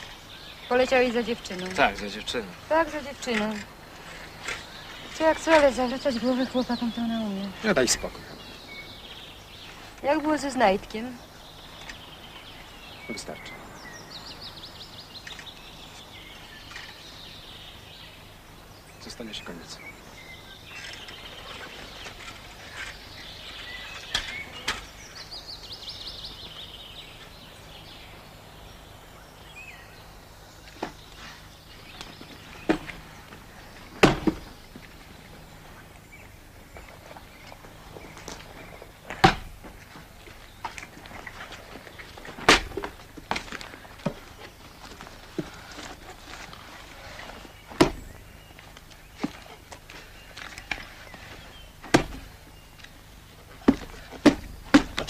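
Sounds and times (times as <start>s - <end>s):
small birds chirping: 0.0s - 55.0s
steady low hum: 0.0s - 55.0s
knocks and thuds: 34.0s - 34.5s, 47.8s - 48.1s, 51.8s - 52.3s, 53.6s - 55.0s.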